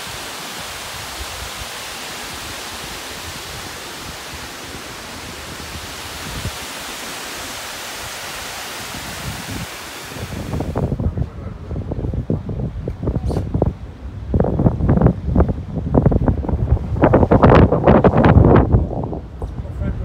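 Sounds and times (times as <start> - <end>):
water rushing over weir: 0.0 - 11.2.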